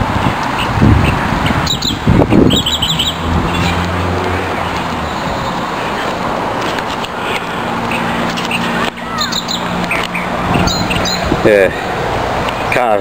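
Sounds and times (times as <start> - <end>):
wind gusts on microphone: 0.0 - 8.9, 9.6 - 12.8
vehicle engine hum: 0.0 - 13.0
bird chirping: 0.6 - 6.2, 6.9 - 11.4.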